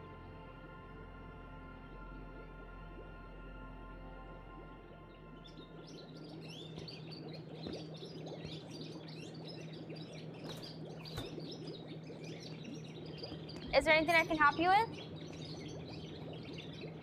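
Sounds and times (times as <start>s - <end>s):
steady low hum: 0.0s - 17.0s
small birds chirping: 5.4s - 17.0s.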